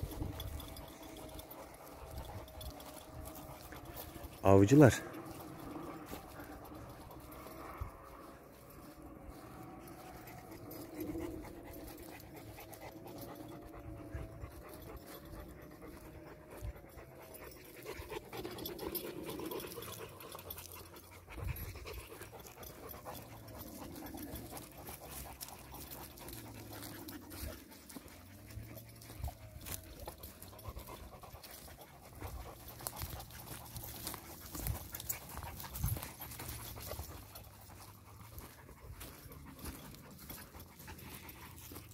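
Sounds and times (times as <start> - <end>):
footsteps on grass: 0.0 - 10.7, 23.4 - 41.9
dogs panting: 0.0 - 41.9.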